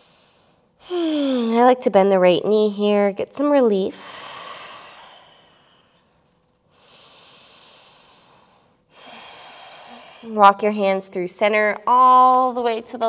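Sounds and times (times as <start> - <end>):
woman breathing slowly: 0.0 - 1.4, 3.9 - 10.4.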